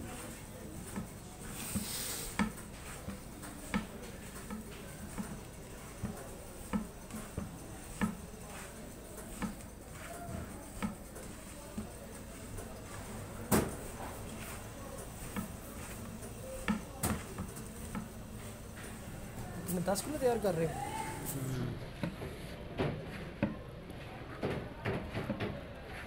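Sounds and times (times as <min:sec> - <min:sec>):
hands kneading wet meat: 0:00.0 - 0:13.0.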